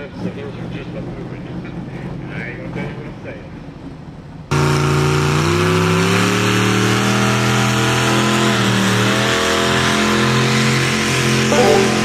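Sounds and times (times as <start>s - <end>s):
truck engine revving high: 4.5s - 12.0s.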